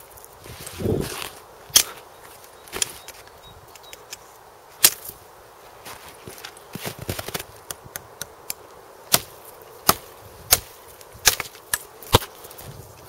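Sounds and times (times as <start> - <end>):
blade chopping into wood: 9.1 - 12.4.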